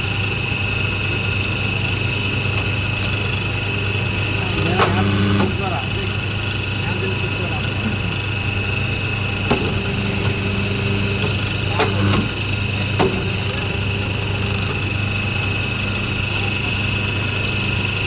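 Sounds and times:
high machine whine: 0:00.0 - 0:18.0
machine motor hum: 0:00.0 - 0:18.0
sharp machine knocks: 0:11.7 - 0:12.3, 0:13.0 - 0:13.4.

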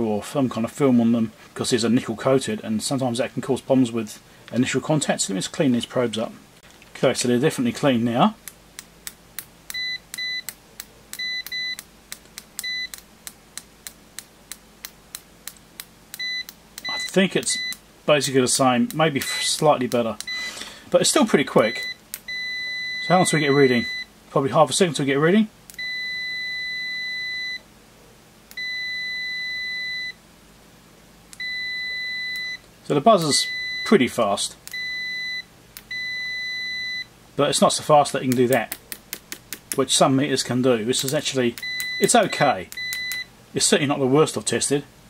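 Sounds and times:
probe tips clicking together: 0:08.4 - 0:17.8, 0:18.8 - 0:20.4, 0:22.1 - 0:22.3, 0:38.2 - 0:39.9, 0:40.9 - 0:42.1
short high multimeter beep: 0:09.7 - 0:10.5, 0:11.2 - 0:11.8, 0:16.2 - 0:17.8, 0:20.3 - 0:20.6, 0:34.7 - 0:37.1, 0:41.6 - 0:43.3
multimeter continuity beep: 0:09.7 - 0:11.9, 0:12.6 - 0:13.0, 0:16.1 - 0:17.8, 0:20.2 - 0:20.6, 0:21.6 - 0:24.1, 0:25.7 - 0:27.6, 0:28.5 - 0:30.2, 0:31.3 - 0:34.1, 0:34.7 - 0:37.1, 0:41.0 - 0:43.3.

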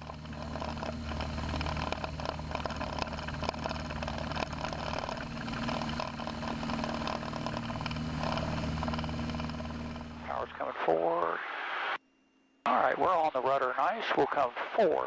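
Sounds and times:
propeller plane engine droning: 0:00.0 - 0:10.6.

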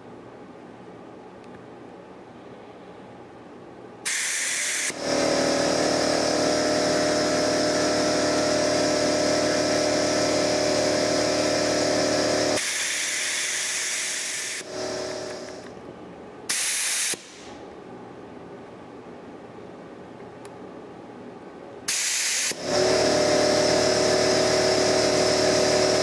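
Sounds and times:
air compressor humming: 0:04.0 - 0:15.8, 0:21.9 - 0:26.0
burst of air hiss: 0:04.1 - 0:15.6, 0:16.5 - 0:17.6, 0:21.9 - 0:23.5
compressed air hissing: 0:04.1 - 0:15.7, 0:16.5 - 0:17.5, 0:21.9 - 0:26.0.

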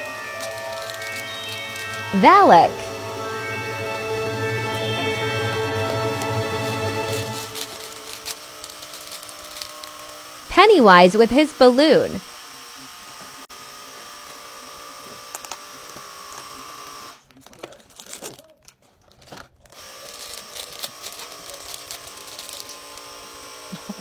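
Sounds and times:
plastic wrapper crinkling: 0:00.0 - 0:01.6, 0:07.5 - 0:10.1, 0:17.3 - 0:22.9.

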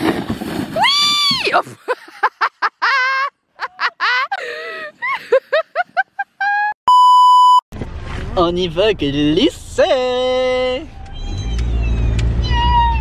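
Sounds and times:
test tone beep: 0:06.9 - 0:07.6.

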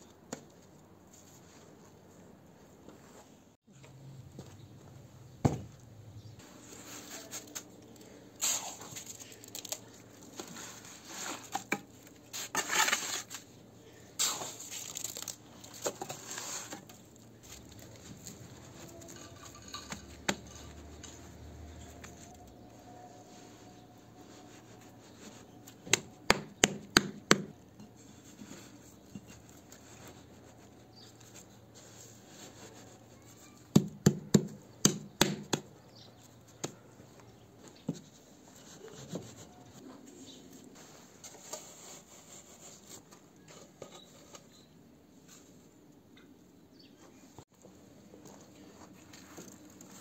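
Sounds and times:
stone scraping and handling: 0:06.6 - 0:22.6.

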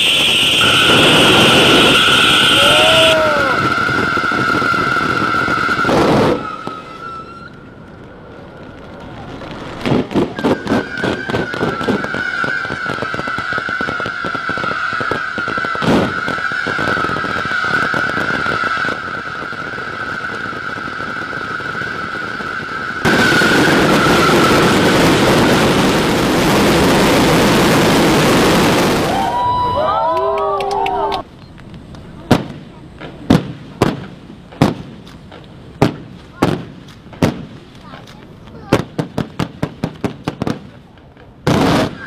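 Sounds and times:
steady high whistle: 0:00.0 - 0:07.7, 0:10.4 - 0:25.1
firecrackers banging and crackling: 0:00.0 - 0:42.0.

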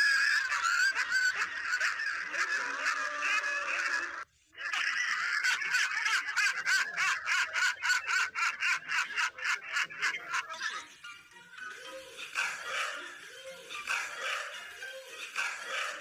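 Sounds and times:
man laughing hysterically: 0:00.0 - 0:04.2.

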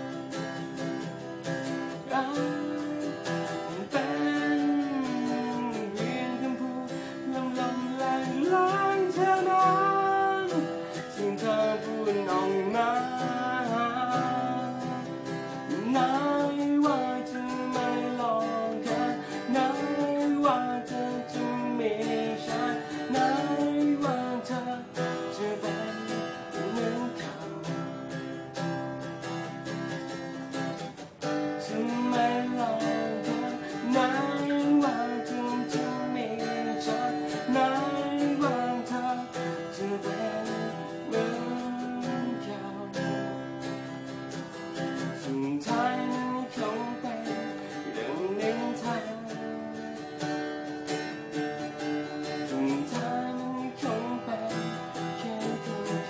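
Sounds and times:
man singing: 0:00.0 - 0:29.4, 0:31.2 - 0:56.0
acoustic guitar strumming: 0:00.0 - 0:56.0.

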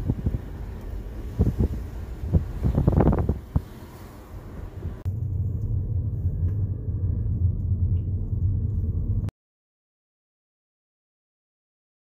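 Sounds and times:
outdoor background noise: 0:00.0 - 0:09.3
steady low rumble: 0:00.0 - 0:09.3.

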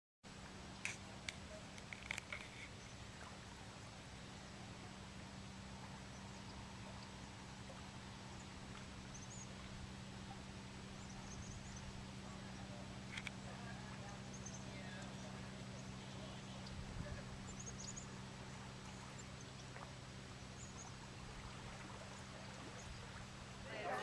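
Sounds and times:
low hum: 0:00.3 - 0:24.0
small birds chirping: 0:05.8 - 0:21.2.

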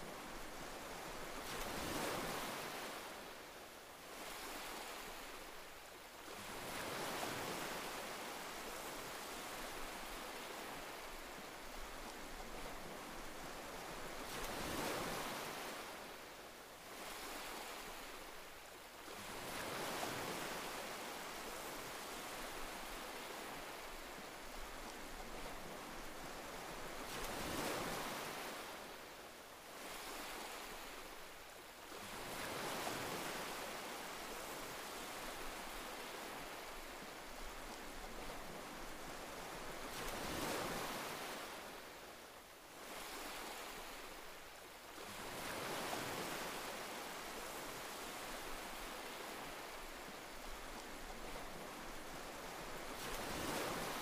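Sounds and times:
sea waves breaking: 0:45.0 - 0:54.0.

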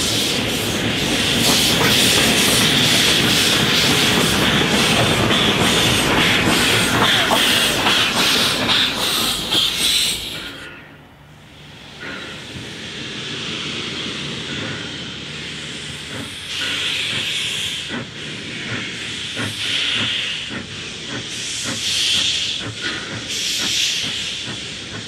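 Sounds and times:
steam hissing: 0:00.0 - 0:10.6, 0:11.6 - 0:25.0
steam locomotive exhaust beats: 0:00.0 - 0:25.0.

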